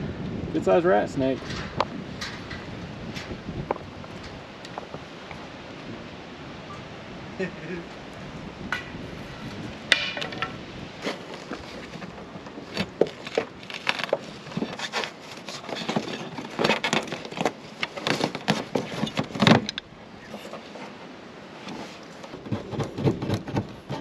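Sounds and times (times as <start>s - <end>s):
metal clank: 1.4s - 3.4s, 9.9s - 10.6s.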